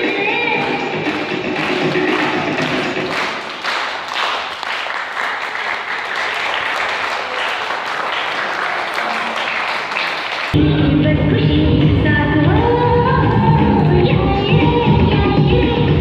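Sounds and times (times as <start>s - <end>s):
audience applauding: 0.6s - 10.6s.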